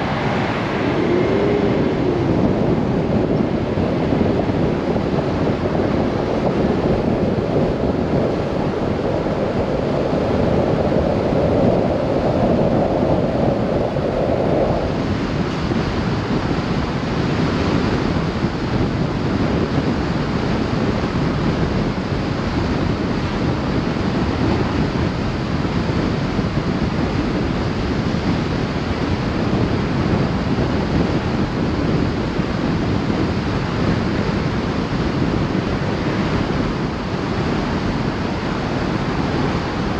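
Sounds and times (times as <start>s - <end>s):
tyre road noise: 0.0s - 7.6s
humming tone in tyre noise: 0.0s - 39.9s
wind rushing over microphone: 0.0s - 39.9s.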